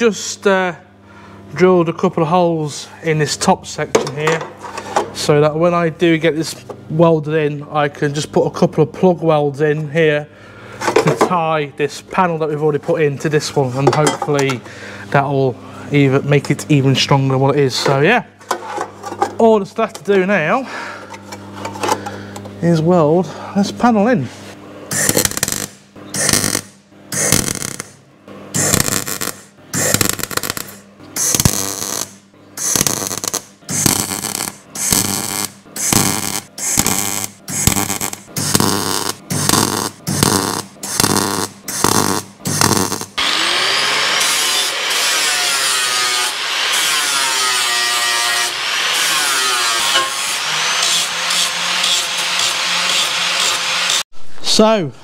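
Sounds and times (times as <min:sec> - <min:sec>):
welder crackling bursts: 0:24.9 - 0:28.0, 0:28.6 - 0:54.0
angle grinder grinding steel: 0:28.6 - 0:54.0.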